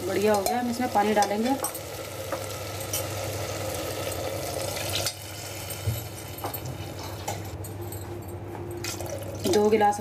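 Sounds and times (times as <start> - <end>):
vegetables sizzling in a pot: 0.0 - 7.6.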